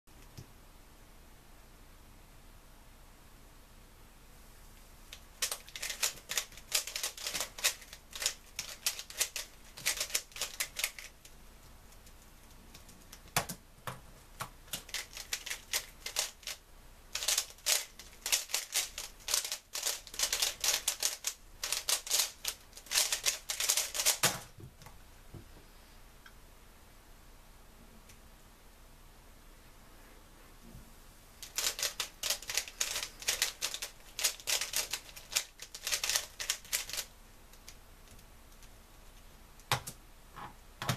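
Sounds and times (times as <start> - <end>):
puzzle cube clicking: 5.4 - 11.2, 14.7 - 24.4, 31.4 - 38.7.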